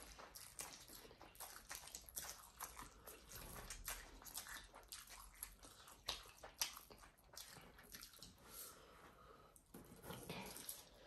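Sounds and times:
chewing with mouth smacks: 0.0s - 8.4s.

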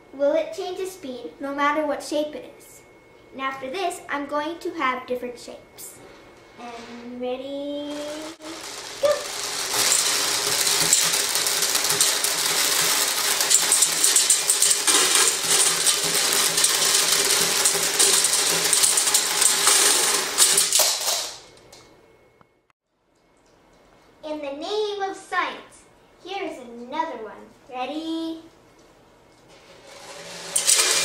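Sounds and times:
beads pouring into jar: 7.9s - 21.3s, 30.1s - 31.0s.

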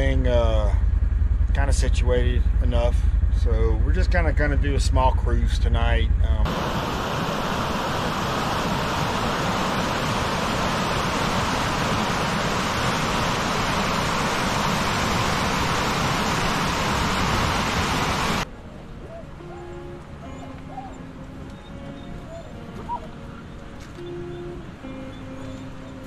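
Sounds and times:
creek rushing over rocks: 6.5s - 18.5s.

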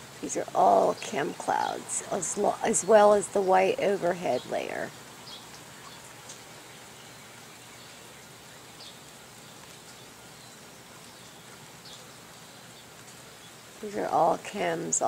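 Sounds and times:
faint outdoor background hiss: 0.0s - 15.0s.

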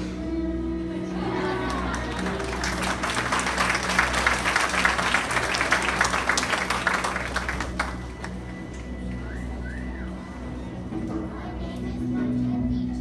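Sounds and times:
music playing: 0.0s - 13.0s
audience applause: 1.2s - 9.3s.

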